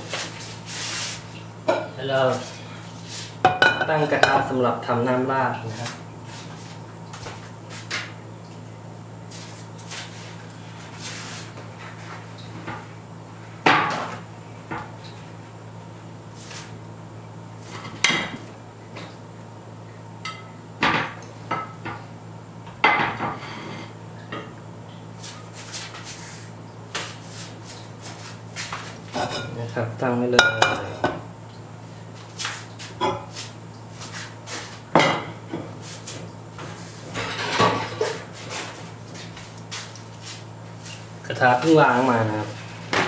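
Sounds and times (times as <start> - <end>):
steady low hum: 0.0 - 43.0
pots and dishes clinking: 3.5 - 4.5, 30.4 - 31.2, 37.1 - 38.2.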